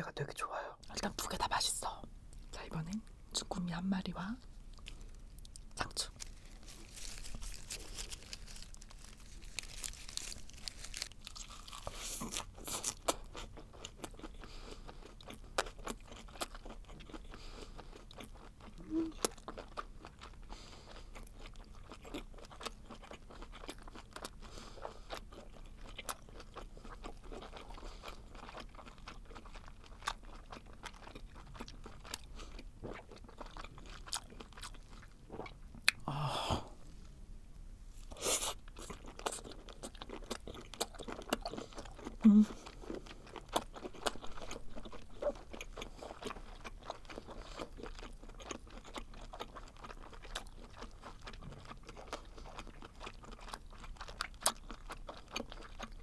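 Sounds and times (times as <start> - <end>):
lettuce crunching: 4.8 - 14.3
wet chewing: 4.8 - 36.0, 38.1 - 56.0.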